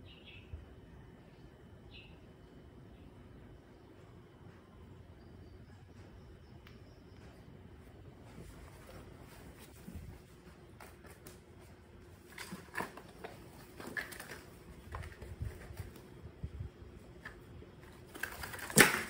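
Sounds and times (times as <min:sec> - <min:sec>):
plastic container handled: 0:12.1 - 0:16.2.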